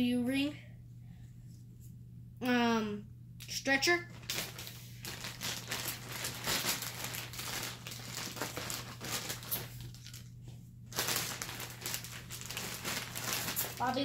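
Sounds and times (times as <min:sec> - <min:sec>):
plastic bag crinkling: 0:04.0 - 0:10.3, 0:10.9 - 0:14.0.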